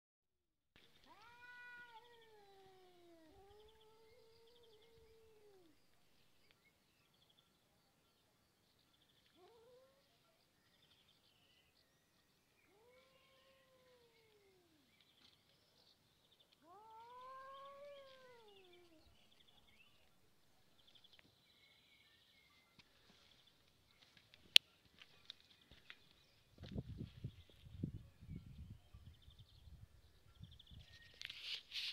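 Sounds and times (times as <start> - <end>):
cat yowling: 1.0 - 5.8, 9.4 - 10.1, 12.7 - 14.9, 16.6 - 19.1.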